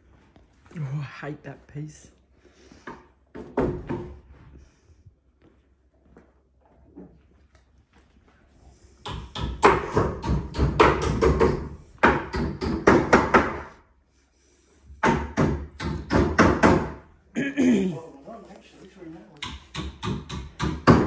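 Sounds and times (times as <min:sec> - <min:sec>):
hammer blows on cabinetry: 0:09.0 - 0:13.7, 0:15.0 - 0:17.1, 0:19.4 - 0:21.0.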